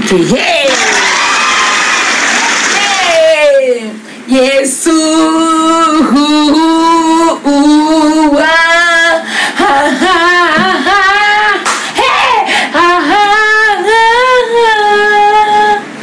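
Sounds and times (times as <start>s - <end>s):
short noisy burst: 0.7s - 3.3s
woman singing without words: 3.6s - 16.0s.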